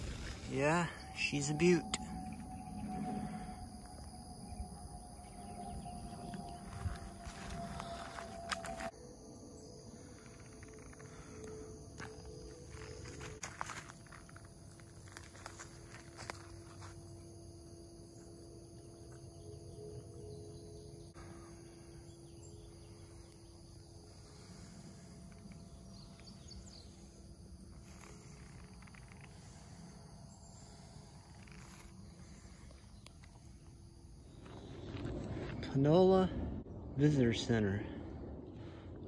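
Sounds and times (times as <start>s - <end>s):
low rumble: 0.0s - 8.9s, 34.4s - 39.0s
insect drone: 0.0s - 39.0s.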